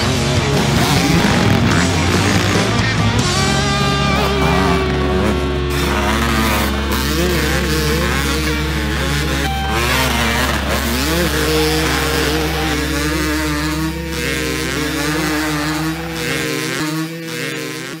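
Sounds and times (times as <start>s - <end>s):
dirt bike engines revving: 0.0s - 18.0s.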